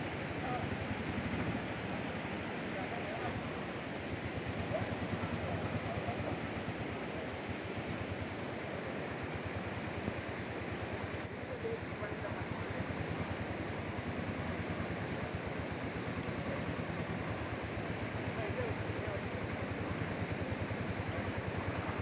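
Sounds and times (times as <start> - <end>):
constant rushing noise: 0.0 - 22.0.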